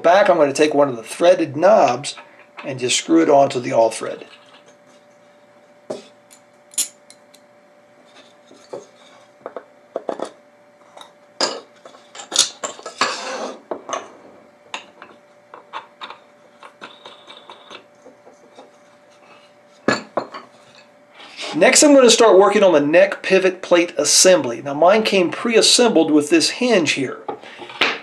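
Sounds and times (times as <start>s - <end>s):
rubbing and scraping: 15.1s - 19.5s.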